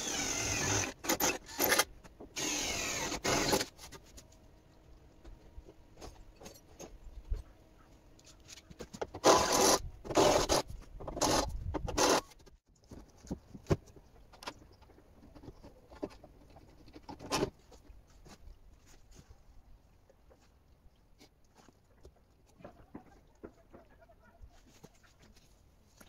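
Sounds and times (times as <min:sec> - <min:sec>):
loud rasping scrapes: 0:09.2 - 0:12.4.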